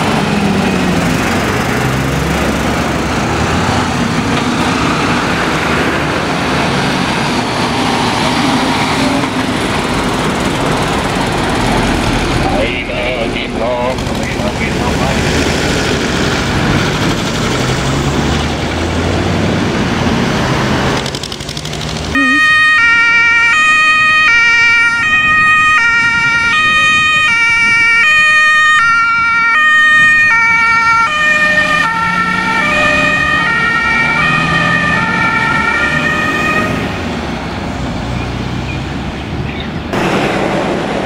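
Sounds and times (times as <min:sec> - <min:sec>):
fire truck engine: 0:00.0 - 0:41.0
two-tone siren: 0:22.2 - 0:37.0.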